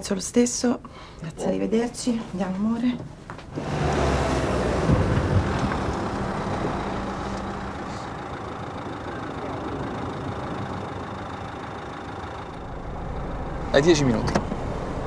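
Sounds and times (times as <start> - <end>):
car engine idling: 3.5 - 15.0.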